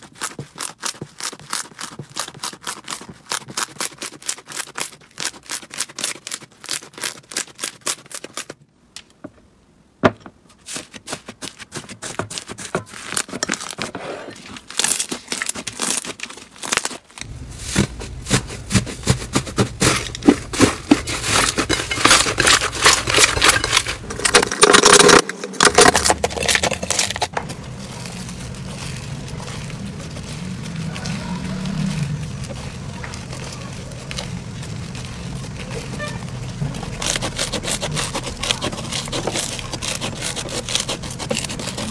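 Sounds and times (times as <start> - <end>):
low steady hum: 17.2 - 39.9.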